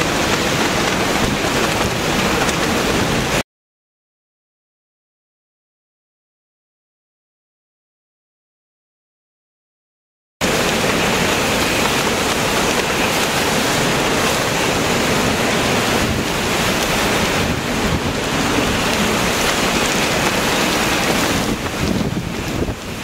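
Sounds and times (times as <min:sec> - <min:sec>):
strong wind on microphone: 0:00.0 - 0:03.4, 0:10.4 - 0:23.0
wind-driven rain: 0:00.0 - 0:03.4, 0:10.4 - 0:23.0.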